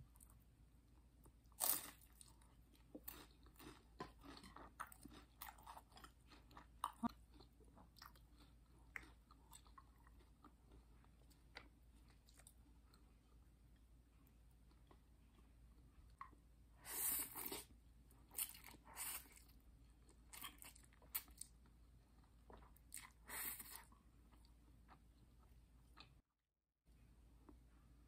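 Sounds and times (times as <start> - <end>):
crunchy bite: 1.5 - 2.4
crunchy chewing: 1.5 - 13.0.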